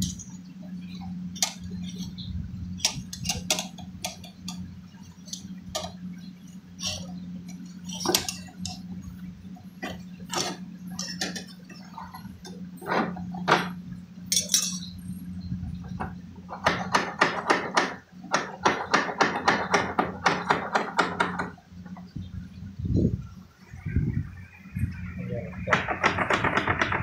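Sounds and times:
low hum: 0:00.0 - 0:17.2, 0:21.5 - 0:27.0
knocks on fridge pipework: 0:16.0 - 0:21.5.

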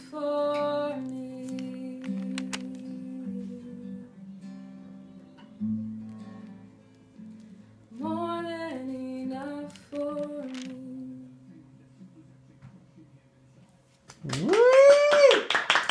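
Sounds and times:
woman singing: 0:00.0 - 0:04.3, 0:07.9 - 0:11.5
acoustic guitar strumming: 0:00.0 - 0:11.8.

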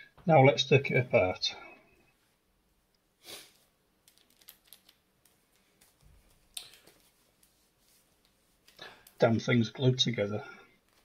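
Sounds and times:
light clicks and rustles: 0:04.0 - 0:09.2.

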